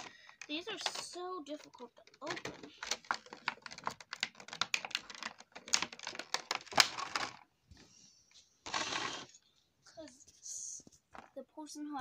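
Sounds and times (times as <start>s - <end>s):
plastic packaging crackling: 0.0s - 7.5s.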